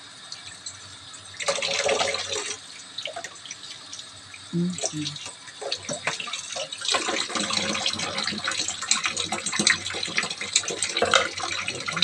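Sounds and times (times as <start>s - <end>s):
tap water splashing into sink: 5.1s - 12.0s.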